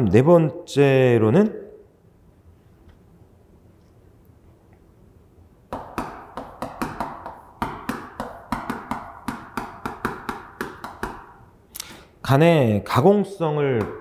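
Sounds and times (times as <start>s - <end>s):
chalk tapping and scraping on chalkboard: 5.7s - 11.4s.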